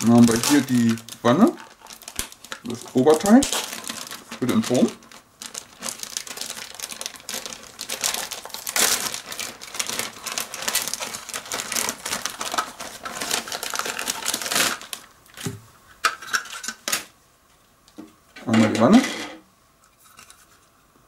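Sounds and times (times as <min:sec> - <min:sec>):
plastic bags crinkling: 0:00.0 - 0:15.4.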